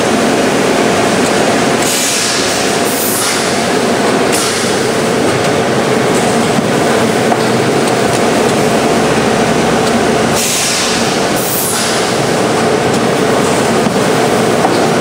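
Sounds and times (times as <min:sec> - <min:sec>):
packaging machine running: 0:00.0 - 0:15.0
hiss: 0:01.8 - 0:03.6, 0:10.4 - 0:12.2.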